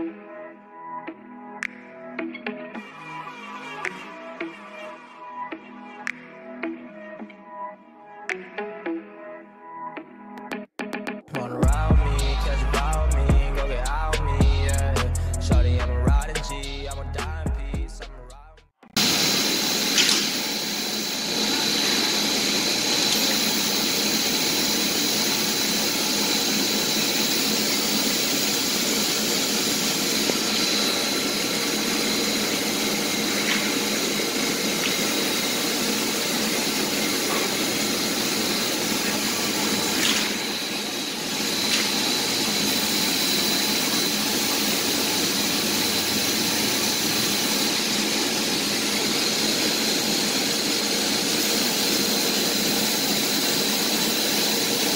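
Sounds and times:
high whine: 0:11.3 - 0:18.4, 0:19.0 - 0:54.9
machinery noise: 0:19.0 - 0:54.9.

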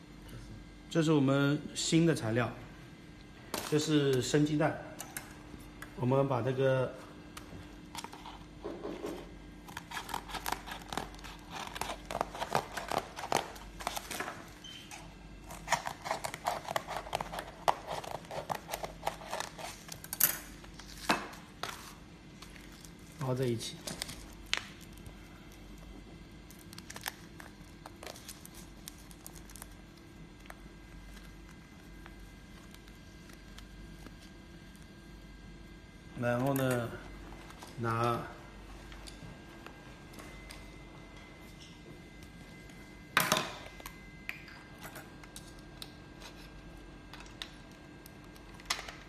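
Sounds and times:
foil crinkling: 0:21.7 - 0:35.0
metal foil crinkling: 0:26.4 - 0:30.1.

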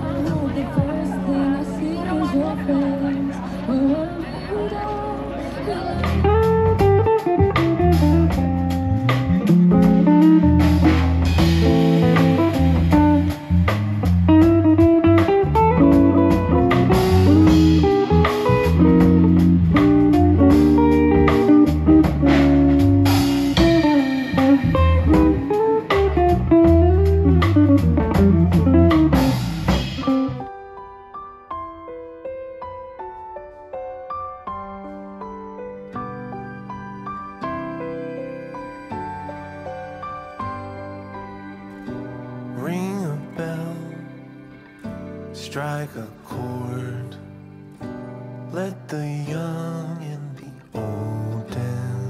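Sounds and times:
electric bass guitar: 0:00.0 - 0:30.8
electric guitar lead melody: 0:00.0 - 0:52.0
drum kit: 0:06.0 - 0:30.8.

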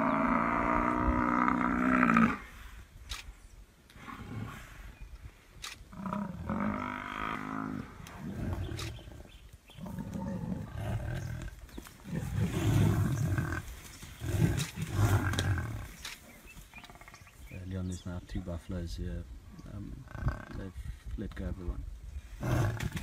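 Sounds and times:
lions growling: 0:03.9 - 0:04.9, 0:05.6 - 0:17.3, 0:22.4 - 0:23.0.

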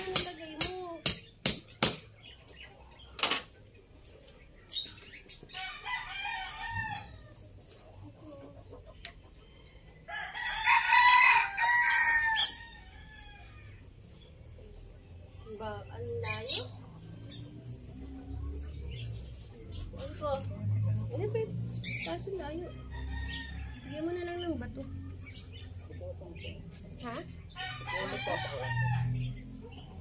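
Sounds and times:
sharp knocks: 0:00.1 - 0:02.1
rooster crowing: 0:05.6 - 0:07.3, 0:10.1 - 0:13.7, 0:27.6 - 0:29.3.

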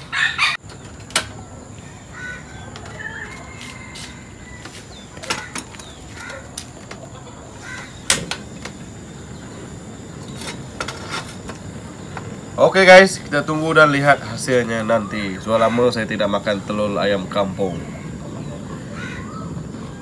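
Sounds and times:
faint bird calls: 0:01.3 - 0:10.3, 0:14.2 - 0:20.0.

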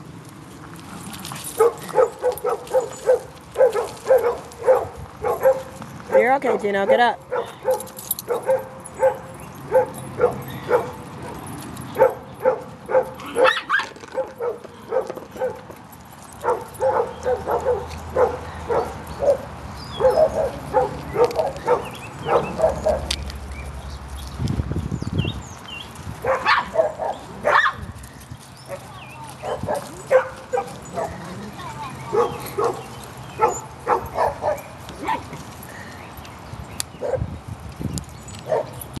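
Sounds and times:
small dogs barking: 0:01.6 - 0:15.6, 0:16.4 - 0:23.2, 0:26.2 - 0:27.9, 0:28.7 - 0:35.4, 0:37.0 - 0:37.3, 0:38.4 - 0:38.9.

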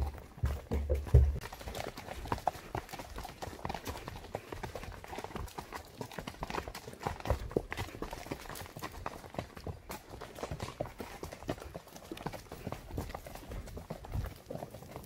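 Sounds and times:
horse hoof clops: 0:00.0 - 0:15.0
heavy low thuds: 0:00.6 - 0:01.4.

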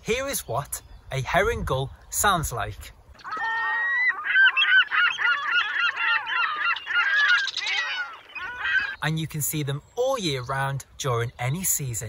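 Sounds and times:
herring gull calling: 0:03.2 - 0:09.0.

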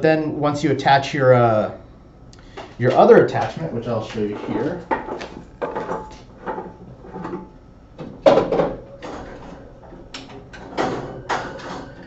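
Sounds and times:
plastic equipment knocking and clattering: 0:04.9 - 0:12.0.

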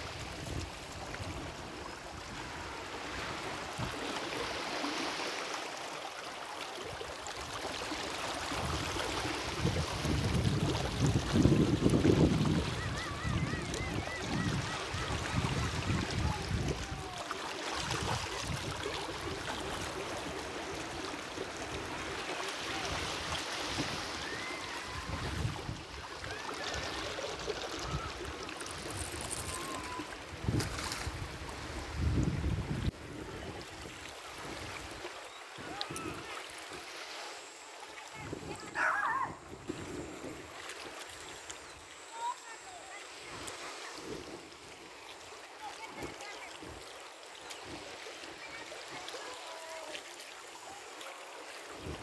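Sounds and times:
surf washing: 0:00.0 - 0:52.0
water rushing over sand: 0:00.0 - 0:52.0
wind buffeting microphone: 0:09.5 - 0:17.1, 0:28.8 - 0:33.8
water trickling over sand: 0:25.7 - 0:31.8.

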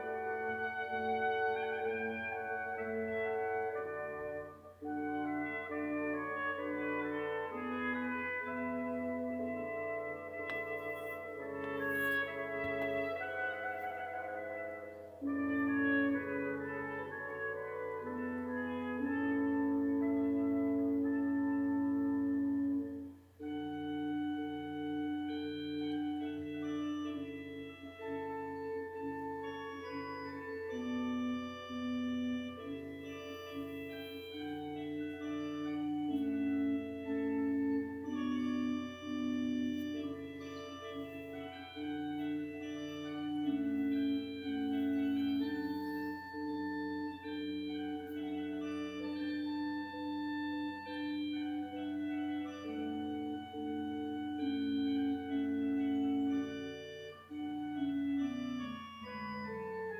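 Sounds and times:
slow keyboard chords: 0:00.0 - 0:59.9.

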